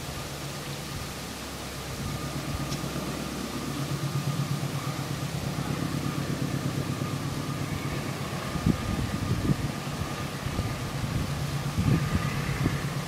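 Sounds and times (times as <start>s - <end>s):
distant engine humming: 0.0s - 13.0s.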